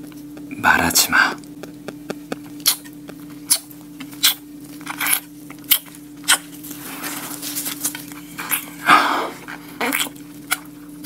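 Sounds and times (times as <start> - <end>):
soft chewing: 0.0 - 0.6, 1.3 - 11.0
lip smacks and bites: 1.4 - 6.6.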